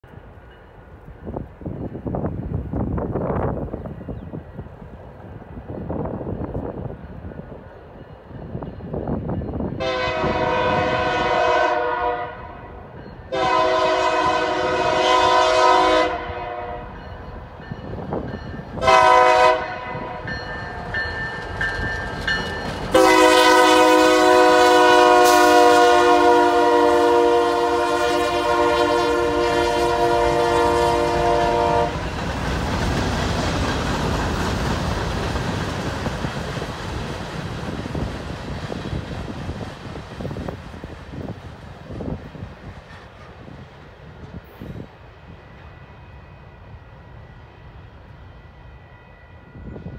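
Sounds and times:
train rumbling on rails: 0:00.0 - 0:49.9
locomotive air horn blasts: 0:09.8 - 0:17.0, 0:18.8 - 0:20.3, 0:22.9 - 0:32.1.

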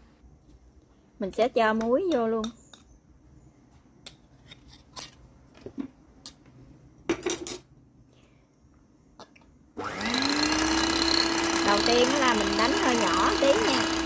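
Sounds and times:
electric hand mixer whirring: 0:09.8 - 0:14.0.

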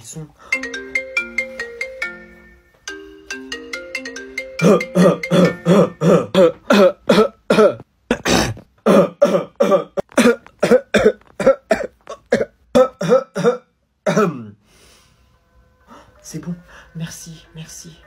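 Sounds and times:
man coughing and clearing throat: 0:04.6 - 0:14.6.

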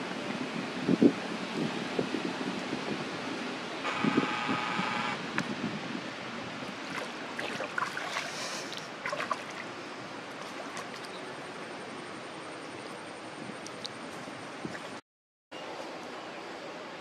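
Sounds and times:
monkey splashing in water: 0:06.8 - 0:09.7, 0:10.3 - 0:11.3.

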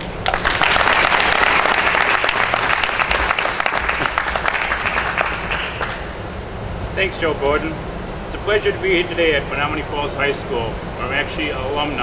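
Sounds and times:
audience applauding: 0:00.2 - 0:06.1.

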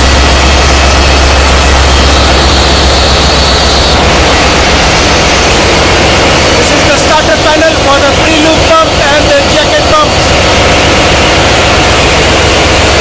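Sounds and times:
engine room diesel machinery din: 0:00.0 - 0:13.0
faint high whine: 0:00.0 - 0:13.0.

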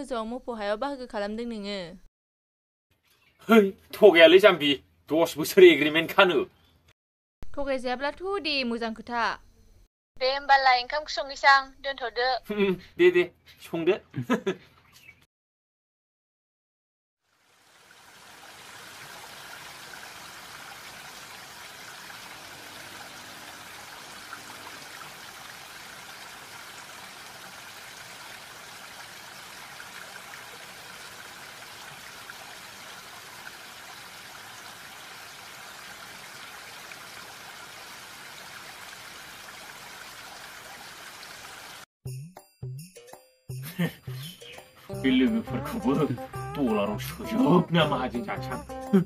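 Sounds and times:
water gushing from pump spout: 0:17.3 - 0:41.9.

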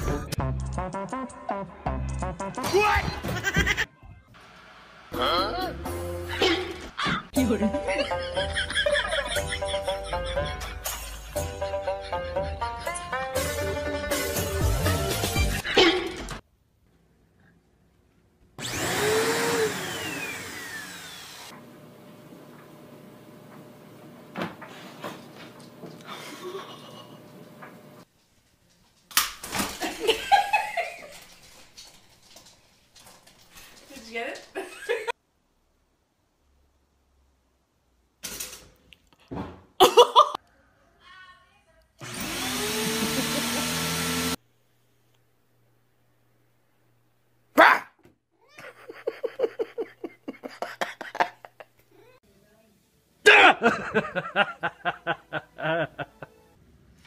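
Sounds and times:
motor winding down: 0:18.6 - 0:21.6, 0:42.0 - 0:44.4
upright vacuum cleaner running: 0:18.6 - 0:26.1, 0:42.0 - 0:44.4.

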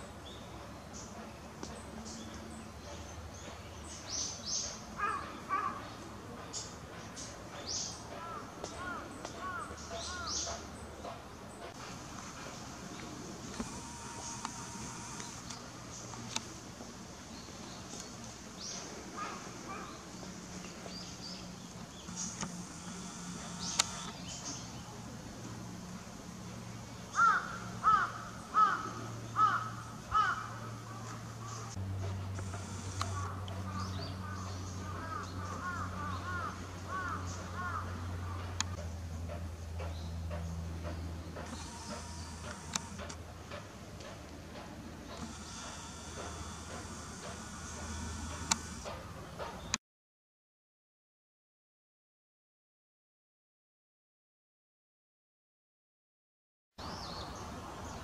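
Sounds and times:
birds with sharp high calls: 0:00.0 - 0:16.6, 0:17.2 - 0:25.1, 0:26.9 - 0:31.8, 0:32.4 - 0:38.8
lower rough bird calls: 0:04.1 - 0:06.8, 0:07.7 - 0:16.6, 0:17.3 - 0:25.0, 0:27.0 - 0:31.8, 0:32.4 - 0:38.8, 0:41.3 - 0:43.1
crow cawing: 0:05.0 - 0:05.8, 0:08.2 - 0:10.4, 0:19.2 - 0:20.0, 0:27.1 - 0:31.7, 0:33.1 - 0:38.5.

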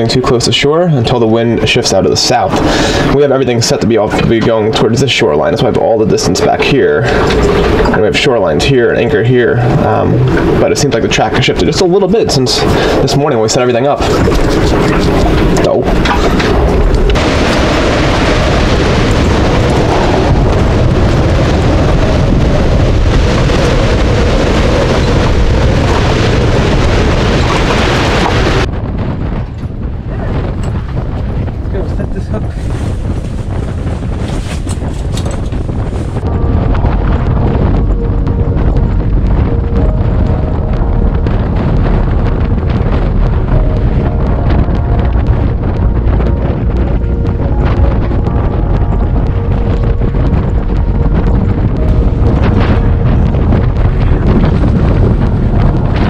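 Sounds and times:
strong wind buffeting microphone: 0:00.0 - 0:56.0.

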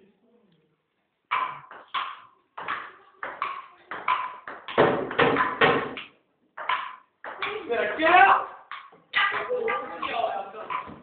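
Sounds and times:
ping-pong ball clicking: 0:08.7 - 0:11.0.

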